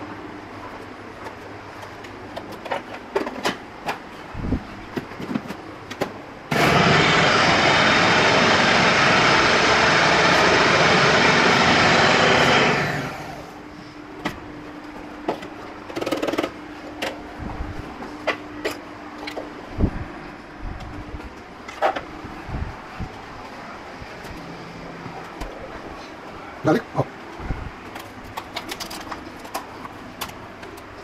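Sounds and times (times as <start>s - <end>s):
food processor running: 6.5s - 13.6s.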